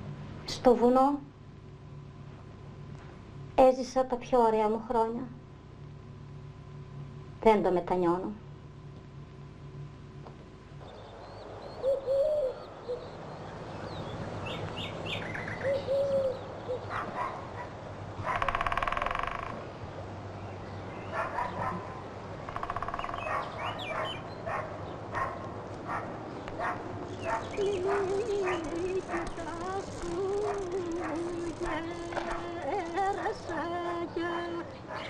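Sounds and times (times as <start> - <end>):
birds chirping: 10.5 - 35.0
dog barking: 16.8 - 18.5, 21.1 - 22.1, 23.2 - 29.4, 30.4 - 31.9.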